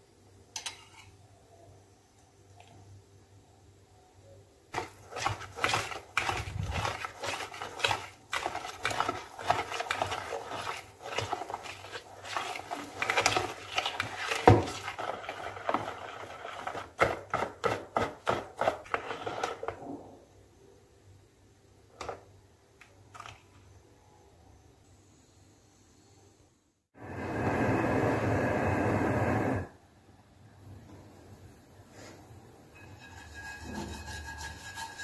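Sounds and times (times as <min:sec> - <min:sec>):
whisk beating batter in bowl: 0:04.7 - 0:19.9, 0:32.8 - 0:35.0.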